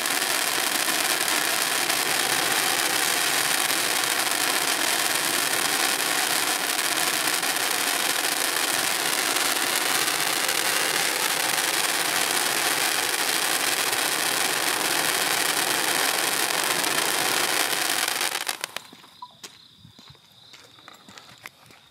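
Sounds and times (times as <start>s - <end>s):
firework fountain hissing: 0.0s - 19.0s
faint crackles: 16.1s - 19.5s.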